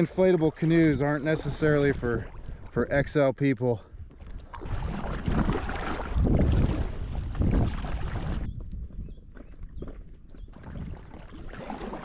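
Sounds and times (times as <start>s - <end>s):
paddle splashes: 0.0s - 3.2s, 4.2s - 8.5s, 10.5s - 12.0s
water lapping: 0.0s - 8.5s, 10.5s - 12.0s
wind rumble on microphone: 0.7s - 3.2s, 3.8s - 12.0s.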